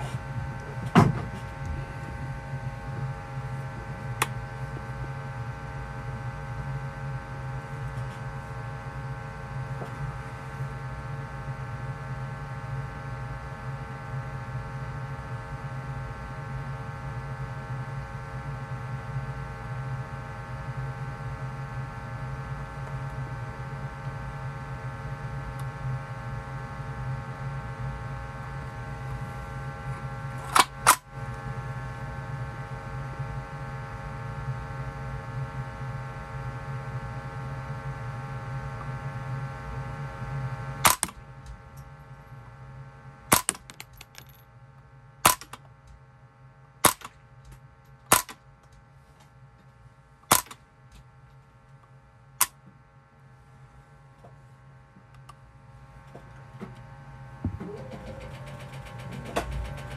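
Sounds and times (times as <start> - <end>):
steady hum: 0.0 - 59.9
silenced rifle shots: 40.8 - 41.2, 43.3 - 43.8, 45.2 - 45.6, 46.8 - 47.2, 48.1 - 48.4, 50.3 - 50.6.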